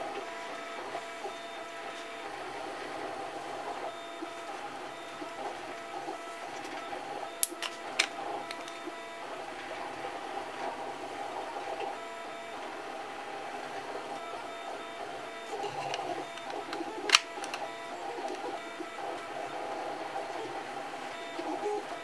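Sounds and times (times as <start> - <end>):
plastic parts clicking: 7.4 - 8.8, 15.8 - 18.4.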